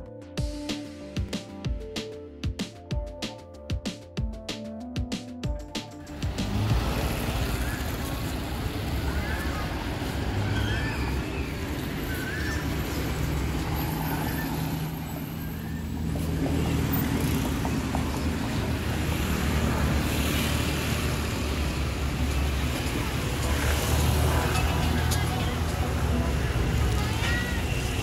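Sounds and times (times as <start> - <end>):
vehicle engines humming: 5.9 - 28.0.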